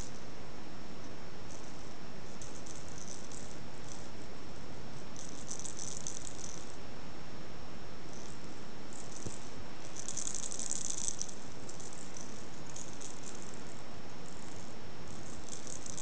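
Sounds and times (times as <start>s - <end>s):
light high-pitched rattling: 1.5s - 4.1s, 5.0s - 6.8s, 8.1s - 16.0s.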